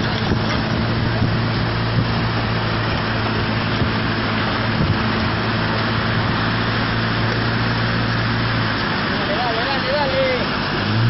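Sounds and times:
muddy flood water rushing: 0:00.0 - 0:11.0
vehicle engine humming: 0:00.0 - 0:11.0.

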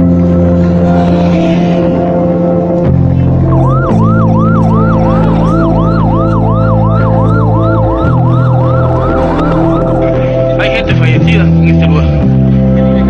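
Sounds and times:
music of held low chords: 0:00.0 - 0:13.0
emergency siren yelping: 0:01.9 - 0:10.6.

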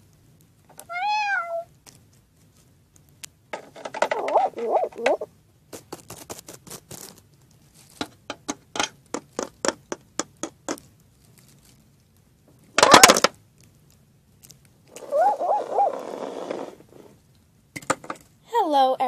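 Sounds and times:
animal-like calls: 0:04.1 - 0:05.3, 0:14.9 - 0:17.1
toy figures tapping on hard surface: 0:08.3 - 0:10.8.

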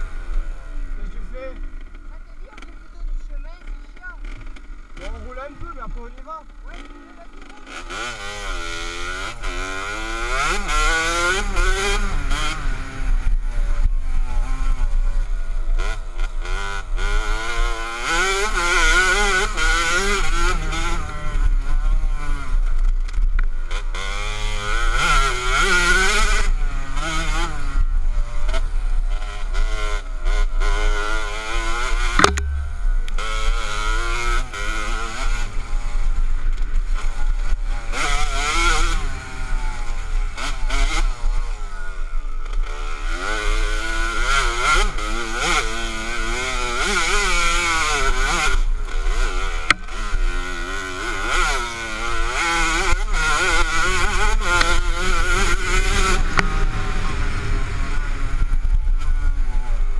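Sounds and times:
dirt bike engine revving: 0:00.0 - 0:59.9
sharp thud: 0:32.1 - 0:33.6.

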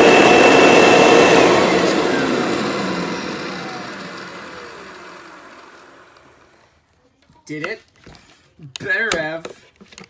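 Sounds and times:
vacuum motor winding down: 0:00.0 - 0:06.6.

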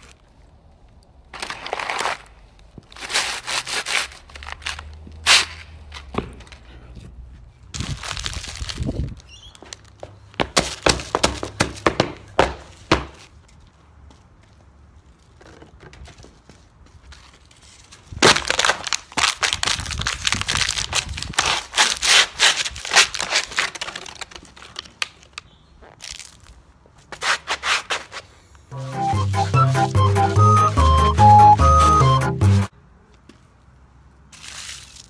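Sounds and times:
plastic bottle crushed underfoot: 0:01.3 - 0:05.5, 0:07.7 - 0:09.8, 0:18.1 - 0:26.5
music: 0:28.7 - 0:32.7.

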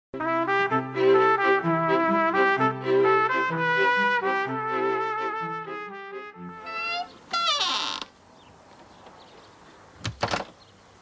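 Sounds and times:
trumpets and trombones playing: 0:00.2 - 0:07.5.

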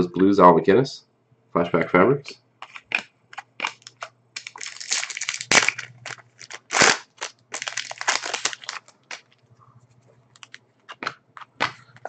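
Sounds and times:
foil wrapper crinkling: 0:02.6 - 0:09.4, 0:10.3 - 0:11.2
foil wrapper ripping: 0:02.6 - 0:09.4.

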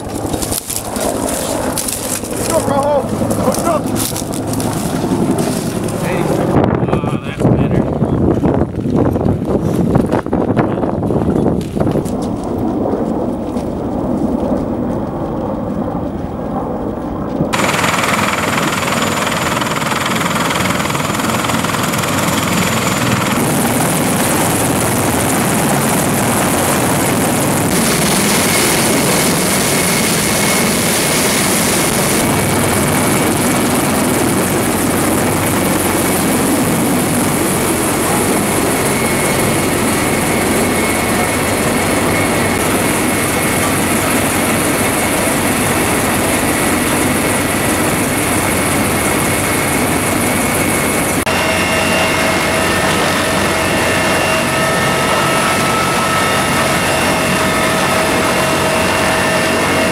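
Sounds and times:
helicopter rotor and engine noise: 0:00.0 - 0:59.9
thin high whine: 0:50.8 - 0:59.9.

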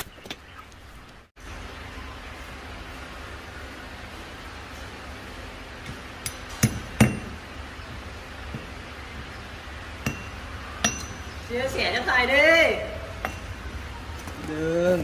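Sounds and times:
low steady hum: 0:00.0 - 0:15.0
steel clinking on steel: 0:10.0 - 0:11.4, 0:13.2 - 0:13.6.

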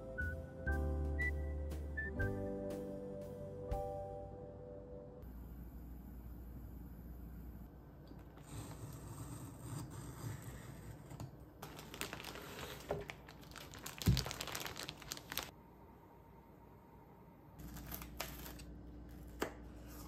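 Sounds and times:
plastic bag crinkling: 0:11.6 - 0:15.5
plastic wrap peeled off box: 0:11.6 - 0:15.5.

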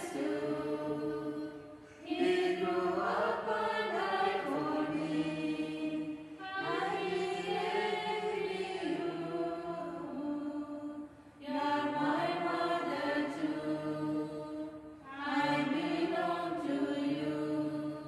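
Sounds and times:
group singing a hymn: 0:00.0 - 0:18.0.

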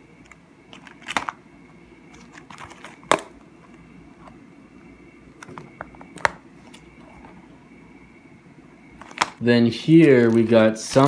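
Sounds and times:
plastic pages crinkling and clicking: 0:00.7 - 0:01.4, 0:09.0 - 0:11.0.

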